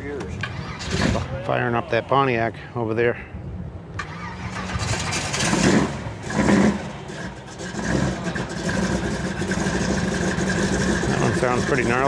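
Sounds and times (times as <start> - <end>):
car engine revving and running: 4.0 - 12.0.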